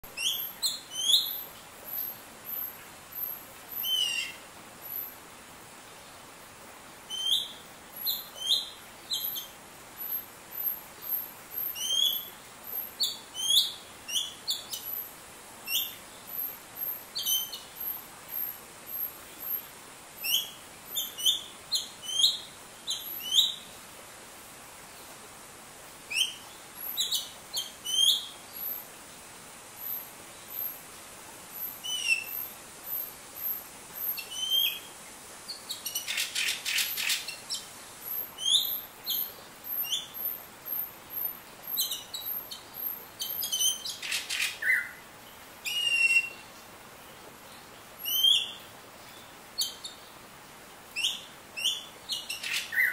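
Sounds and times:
bird chirping and whistling: 0:11.8 - 0:12.3, 0:38.4 - 0:38.8, 0:45.7 - 0:46.3.

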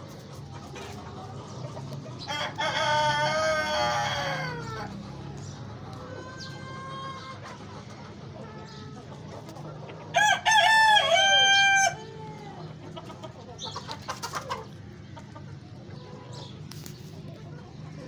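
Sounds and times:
chickens clucking: 0:00.0 - 0:18.0
rooster crowing: 0:10.2 - 0:12.1.

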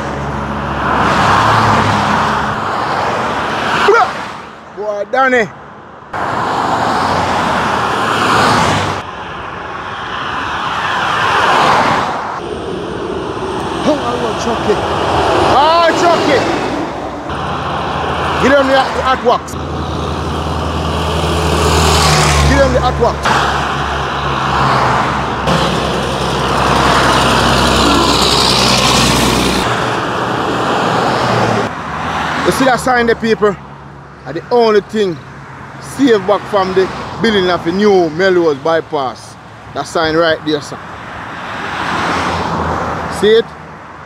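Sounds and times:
highway traffic passing: 0:00.0 - 0:44.0
heavy truck passing: 0:11.2 - 0:32.6
cars passing with tyre hiss: 0:35.2 - 0:44.0.

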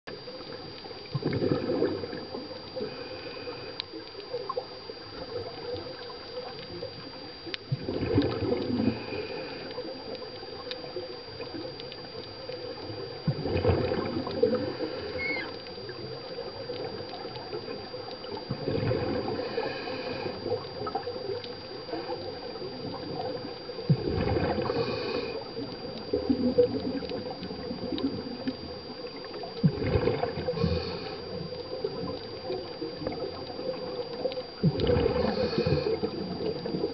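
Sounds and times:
thin steady high tone: 0:00.1 - 0:36.9
underwater bubbles gurgling: 0:00.1 - 0:36.9.

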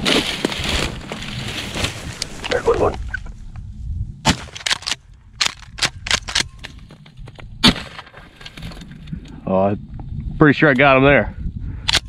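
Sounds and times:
shotgun firing: 0:04.2 - 0:04.8, 0:07.6 - 0:08.1.

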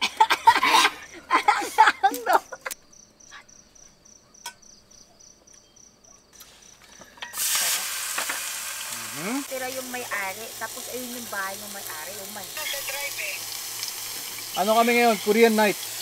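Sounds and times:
insects chirping: 0:00.0 - 0:16.0
meat sizzling on griddle pan: 0:07.4 - 0:16.0.

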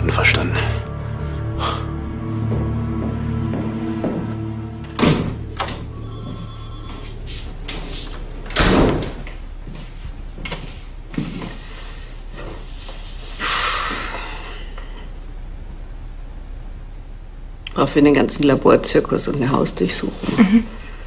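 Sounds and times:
door shutting thud: 0:04.8 - 0:05.9, 0:08.5 - 0:09.4.

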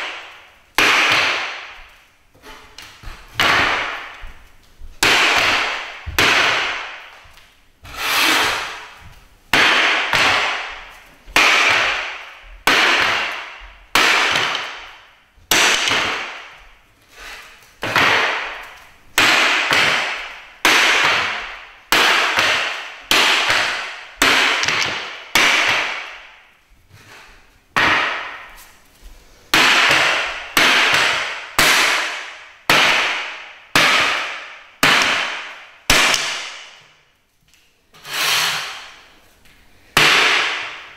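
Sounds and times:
hatchet chopping wooden chair: 0:00.0 - 0:01.9, 0:02.8 - 0:04.2, 0:05.0 - 0:07.1, 0:09.5 - 0:16.6, 0:17.8 - 0:26.2, 0:27.8 - 0:28.5, 0:29.5 - 0:36.8, 0:40.0 - 0:40.9.

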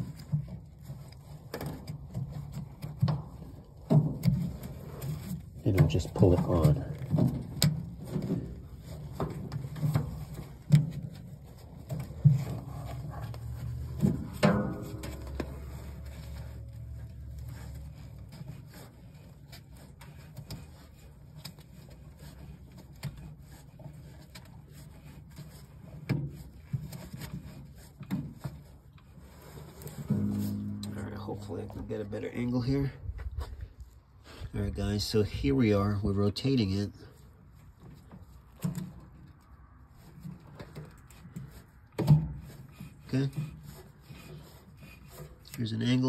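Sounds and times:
drive belt knocks and rubbing: 0:00.0 - 0:32.0
thumps: 0:01.5 - 0:18.2, 0:29.9 - 0:32.2.

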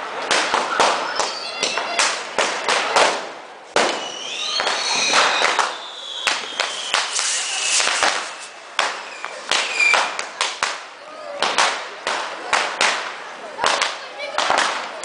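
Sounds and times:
firecracker bangs and crackles: 0:00.1 - 0:15.0
whistling rockets: 0:00.8 - 0:02.1, 0:03.8 - 0:10.8.

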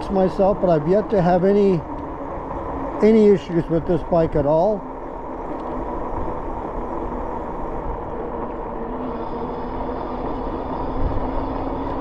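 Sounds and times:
faint steady hum: 0:00.0 - 0:12.0
wind rushing over microphone: 0:05.2 - 0:12.0.

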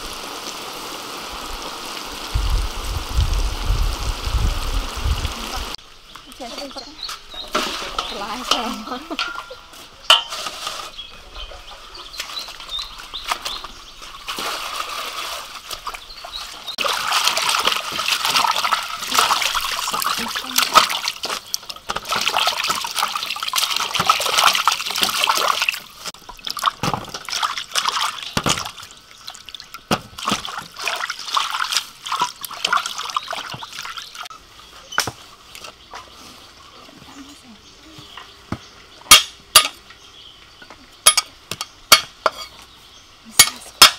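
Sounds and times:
water sloshing in steel basin: 0:07.2 - 0:34.3.

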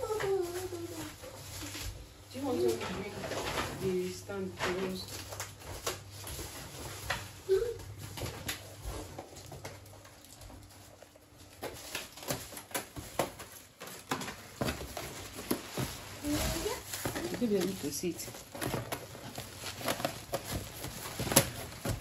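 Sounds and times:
plastic bags rustling: 0:00.0 - 0:22.0.

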